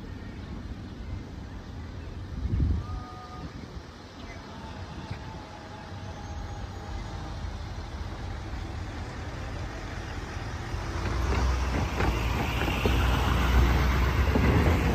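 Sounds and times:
car and truck engines: 0:06.0 - 0:14.9.

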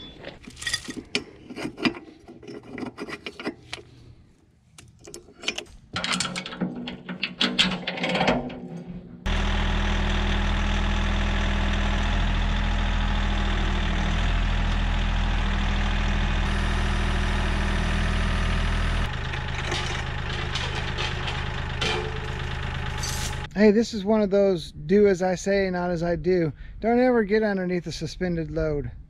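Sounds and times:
steel chain clinking: 0:00.0 - 0:01.2, 0:19.4 - 0:23.5
diesel tractor engine running: 0:09.2 - 0:23.6.

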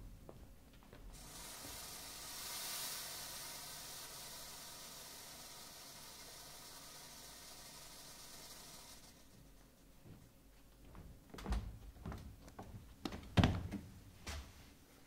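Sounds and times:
fog machine hissing: 0:01.1 - 0:09.6
dull thumps and knocks: 0:11.0 - 0:13.9.

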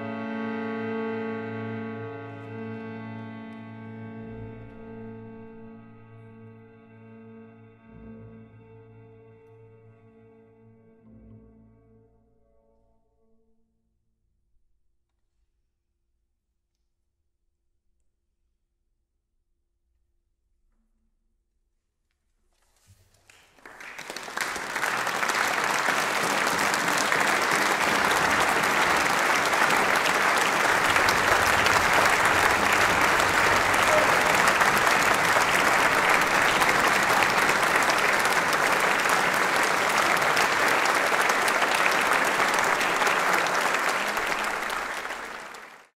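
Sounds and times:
audience applauding: 0:23.2 - 0:45.9.

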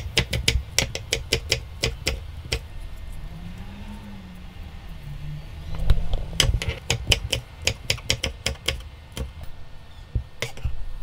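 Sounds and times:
knife chopping on wooden board: 0:00.0 - 0:02.6, 0:06.4 - 0:09.3.

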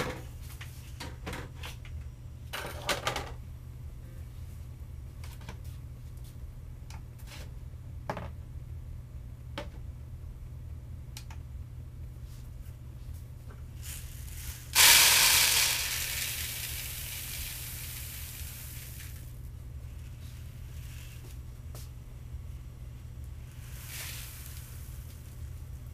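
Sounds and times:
grain pouring into a bowl: 0:13.8 - 0:19.3, 0:23.5 - 0:25.5.

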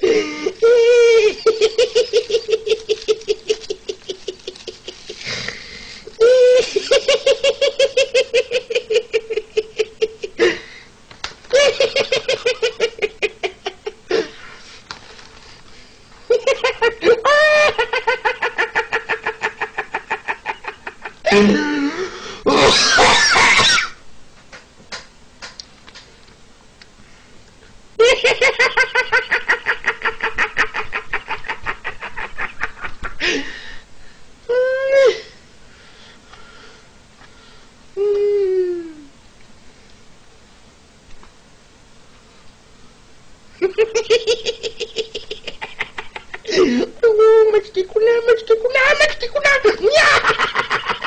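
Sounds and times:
man giggling: 0:00.0 - 0:05.5, 0:06.2 - 0:10.7, 0:16.3 - 0:23.6, 0:28.0 - 0:33.6, 0:43.6 - 0:48.0, 0:48.8 - 0:51.0
breathing: 0:05.2 - 0:06.1, 0:10.4 - 0:11.0, 0:21.9 - 0:22.4, 0:27.0 - 0:27.4, 0:33.2 - 0:34.3, 0:35.7 - 0:37.8.

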